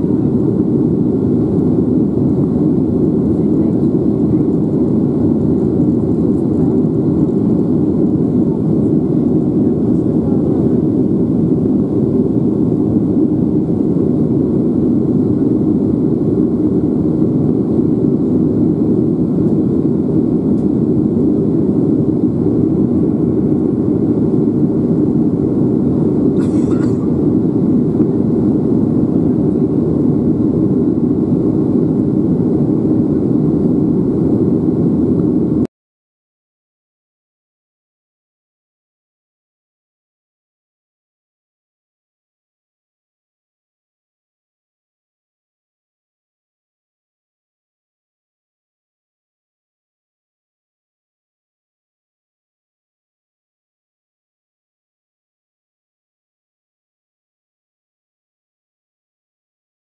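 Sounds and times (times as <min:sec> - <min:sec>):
airplane cabin engine rumble: 0:00.0 - 0:35.7.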